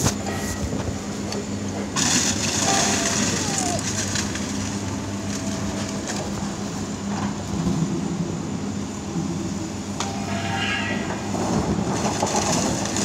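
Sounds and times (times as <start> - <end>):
excavator diesel engine running: 0.0 - 13.0
debris cracking: 2.0 - 6.3, 11.6 - 13.0.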